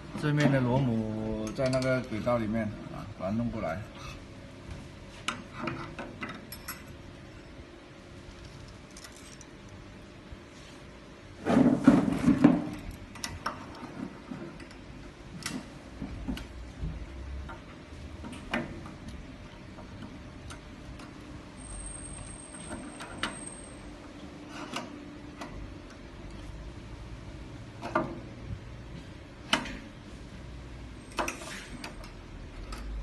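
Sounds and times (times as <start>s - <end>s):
metal parts knocking and rattling: 8.4s - 9.5s.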